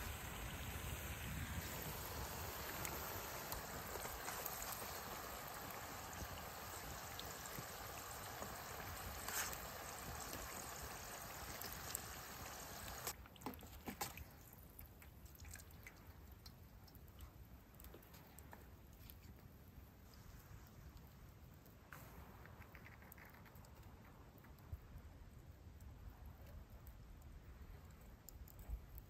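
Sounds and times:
bacon sizzling in skillet: 0:00.0 - 0:13.2
grease spatter: 0:00.0 - 0:13.2.

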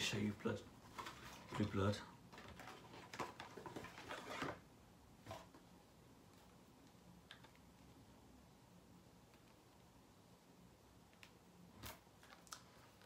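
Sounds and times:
packaging rustling and clicking: 0:00.8 - 0:04.6.

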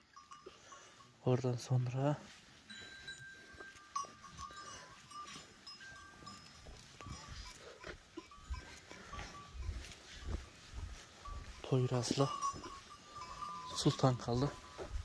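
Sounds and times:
thin bell-like ringing: 0:00.0 - 0:01.9, 0:02.6 - 0:15.0
faint goats: 0:06.1 - 0:15.0.

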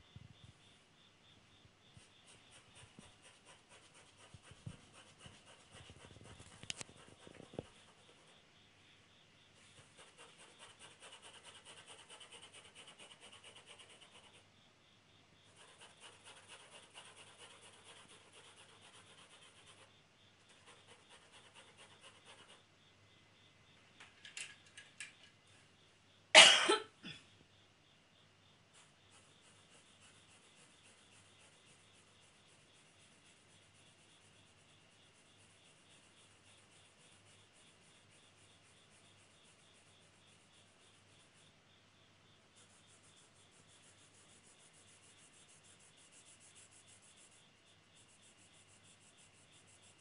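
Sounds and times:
pencil hatching on paper: 0:02.1 - 0:08.3, 0:09.7 - 0:14.4, 0:15.5 - 0:19.9, 0:28.8 - 0:41.5, 0:42.5 - 0:50.0
person coughing: 0:26.4 - 0:27.2.

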